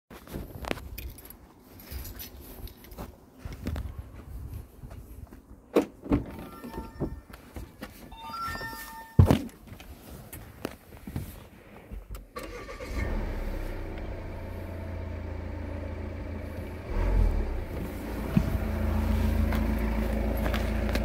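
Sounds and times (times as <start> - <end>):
footsteps: 6.4 - 12.1, 17.7 - 21.0
electronic beeping tones: 8.1 - 9.4.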